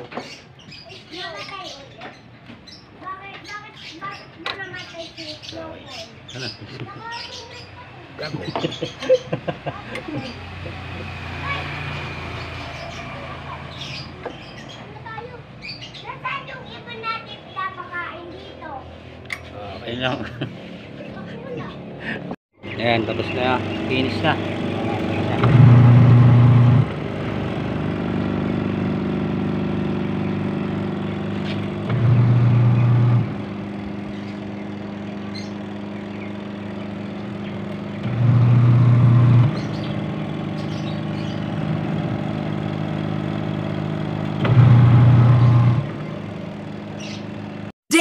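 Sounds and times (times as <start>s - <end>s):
low motor hum: 6.3s - 15.8s, 19.1s - 47.7s
washing machine electric hum: 22.8s - 48.0s.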